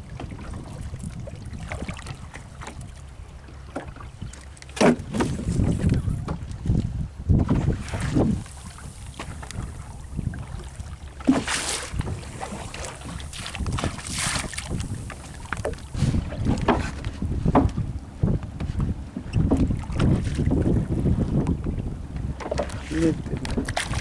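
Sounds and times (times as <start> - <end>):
water sloshing against boat: 0.0 - 24.0
wind buffeting microphone: 0.0 - 24.0
loud splashes: 11.2 - 16.0.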